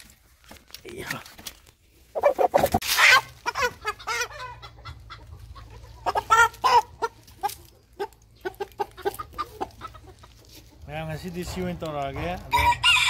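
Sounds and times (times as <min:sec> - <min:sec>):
chicken squawking and clucking: 0:02.1 - 0:10.9.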